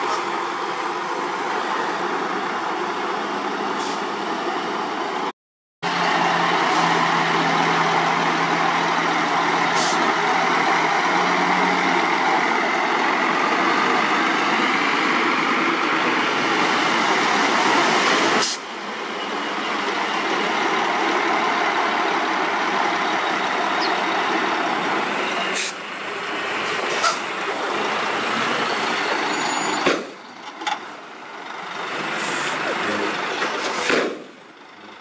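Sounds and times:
diesel dump trucks running: 0:00.0 - 0:35.0.

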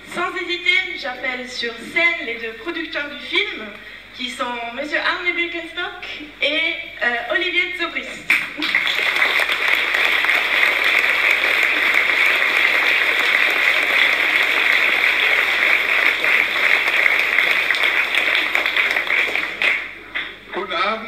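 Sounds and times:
audience applauding: 0:08.6 - 0:20.5.

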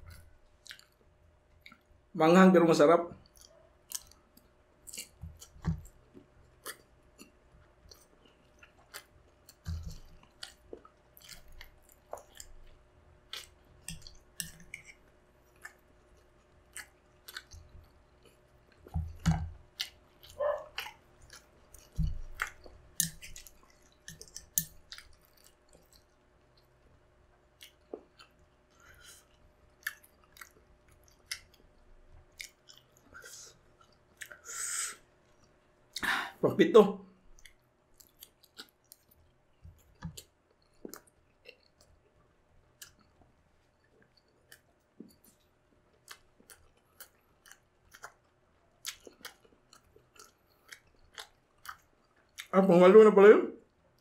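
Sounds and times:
close-miked chewing: 0:00.0 - 0:01.9, 0:03.2 - 0:34.5, 0:37.3 - 0:52.6
wet mouth clicks and smacks: 0:00.1 - 0:01.0.

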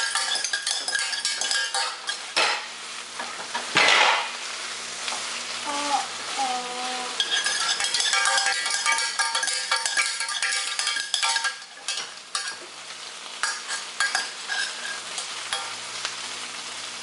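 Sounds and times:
utensil scraping saucepan: 0:00.0 - 0:02.6, 0:07.1 - 0:12.7, 0:13.4 - 0:15.8.

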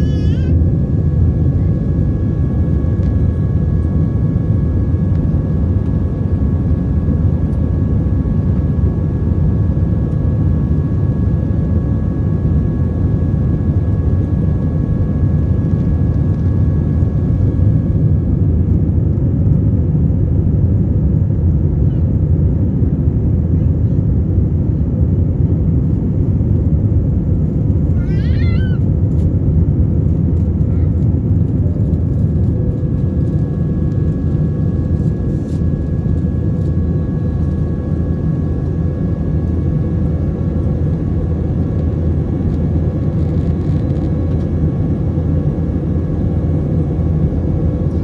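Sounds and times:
airliner cabin drone: 0:00.0 - 0:48.0.

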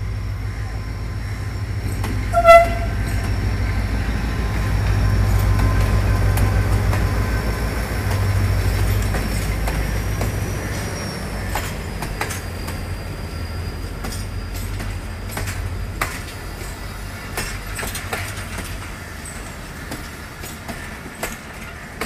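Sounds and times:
diesel locomotive engine rumbling: 0:00.0 - 0:22.0
short horn toot: 0:02.3 - 0:03.0.

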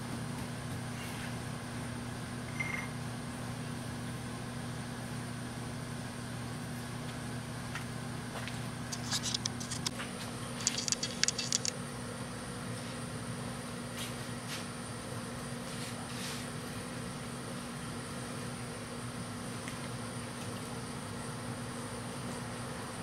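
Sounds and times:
shop machinery humming: 0:06.3 - 0:13.1.

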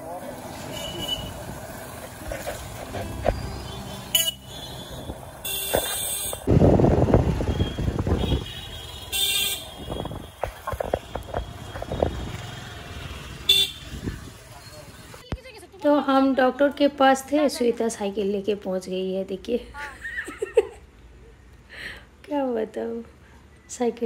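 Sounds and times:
motorbike engines passing: 0:00.0 - 0:15.3
short horn honks: 0:03.4 - 0:06.5.

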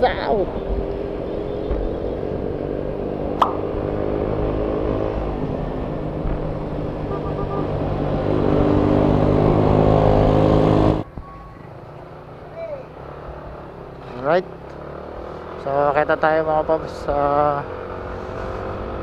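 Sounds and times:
road traffic: 0:00.0 - 0:19.0
sharp click: 0:03.4 - 0:03.7.

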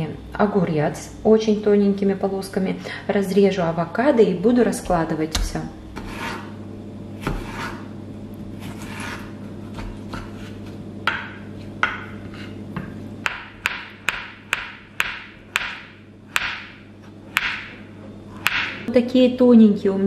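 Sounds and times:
knife slicing vegetables: 0:05.9 - 0:06.6, 0:07.2 - 0:07.9, 0:08.5 - 0:10.8.

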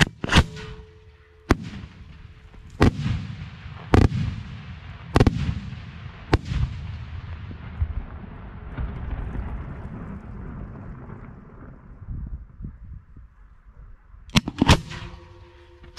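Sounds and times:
fireworks bangs with echo: 0:00.0 - 0:11.3.

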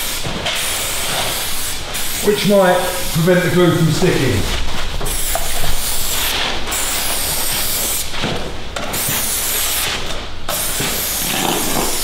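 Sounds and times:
aerosol can hissing: 0:00.0 - 0:03.6, 0:05.0 - 0:08.1, 0:09.0 - 0:09.9, 0:10.5 - 0:12.0.

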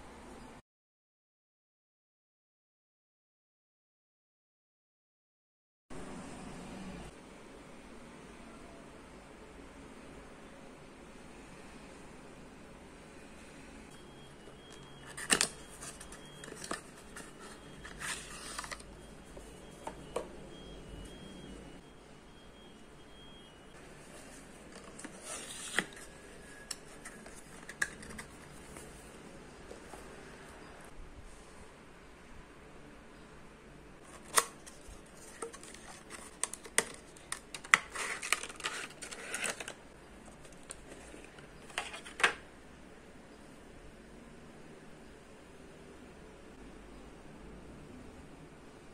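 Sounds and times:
papery scrape and rustle: 0:15.0 - 0:18.9, 0:24.0 - 0:29.1, 0:34.0 - 0:39.8.

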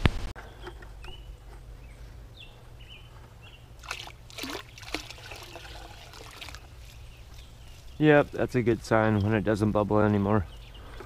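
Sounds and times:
liquid splashing into tub: 0:03.8 - 0:06.7
liquid sloshing in plastic bucket: 0:03.8 - 0:07.0.

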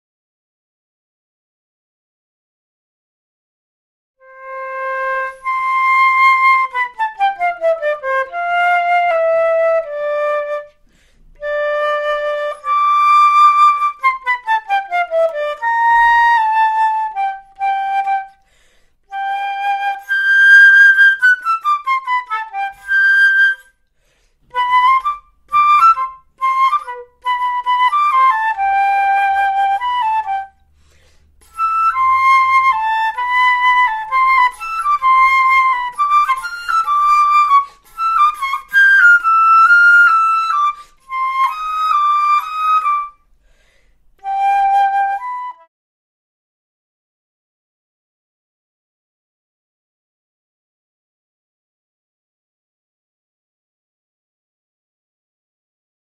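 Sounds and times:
solo flute playing: 0:04.2 - 0:43.4, 0:44.2 - 0:45.7.

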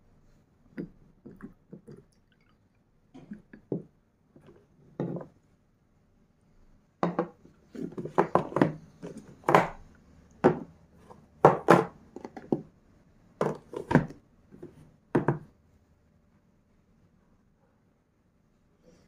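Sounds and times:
hard plastic clacking and knocking: 0:07.0 - 0:09.8.

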